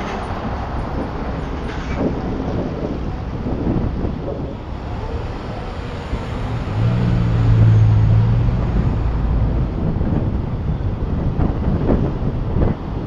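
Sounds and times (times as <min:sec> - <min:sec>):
low engine hum: 0:00.0 - 0:13.0
low road rumble: 0:00.0 - 0:13.0
wind buffeting microphone: 0:00.0 - 0:13.0.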